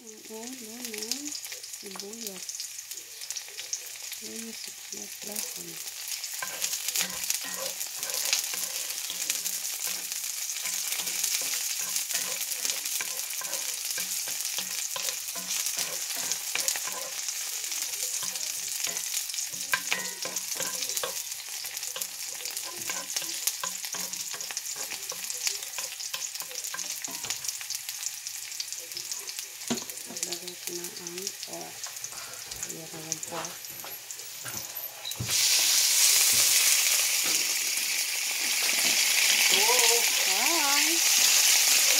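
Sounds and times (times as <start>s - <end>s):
onions sizzling in hot oil: 0.0s - 41.9s
wooden spatula stirring: 6.2s - 27.5s.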